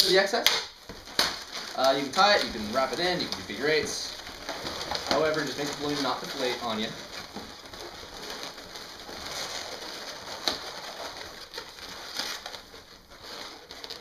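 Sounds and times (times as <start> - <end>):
balloons squeaking and rubbing: 0.0 - 14.0.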